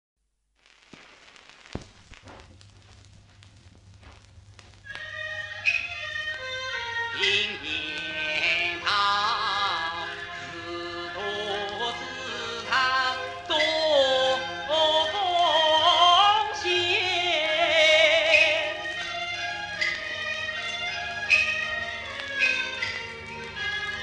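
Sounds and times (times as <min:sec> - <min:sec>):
steady low hum: 0:00.3 - 0:06.1
sung melody with vibrato: 0:04.8 - 0:24.0.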